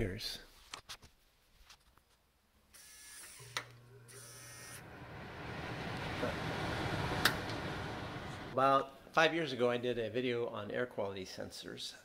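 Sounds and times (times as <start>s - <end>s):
stove fan rushing air: 4.6s - 8.6s
button pusher whirring and clicking: 7.0s - 8.0s.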